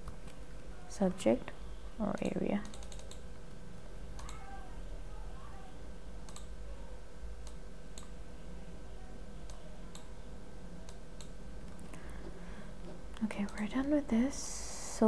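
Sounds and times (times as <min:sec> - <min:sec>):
low electrical hum: 0:00.0 - 0:15.0
computer mouse clicks: 0:02.2 - 0:03.6, 0:04.2 - 0:04.4, 0:06.2 - 0:06.5, 0:07.4 - 0:08.1, 0:10.9 - 0:11.9, 0:13.1 - 0:13.7.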